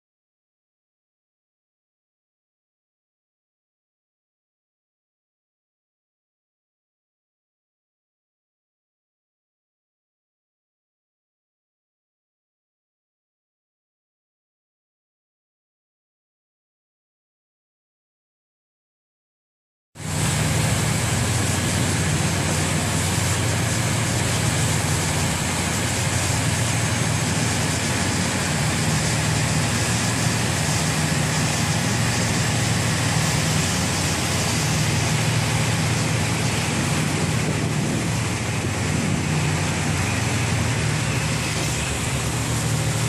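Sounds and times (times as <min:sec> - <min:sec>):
boat diesel engines droning: 0:20.0 - 0:43.0
hiss of wind and water: 0:20.0 - 0:43.0.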